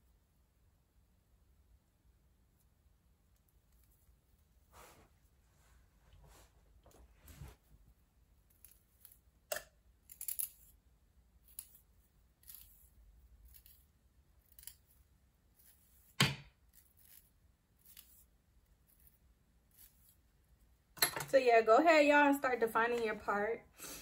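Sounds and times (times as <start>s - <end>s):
comb clicking and rustling in hair: 11.4s - 20.3s.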